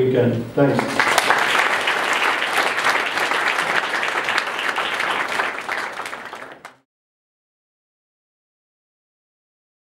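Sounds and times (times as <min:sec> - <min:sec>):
audience applauding: 0:00.7 - 0:06.8.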